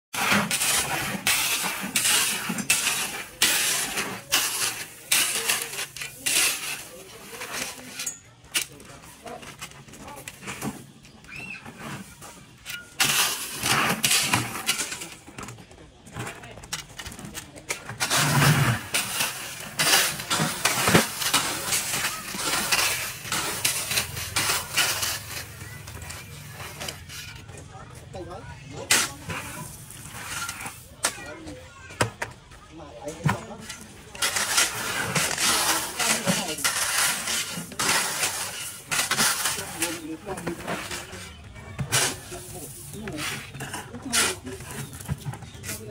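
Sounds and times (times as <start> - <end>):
shovel scraping gravel: 0.1 - 27.6, 28.7 - 31.8, 33.1 - 45.9.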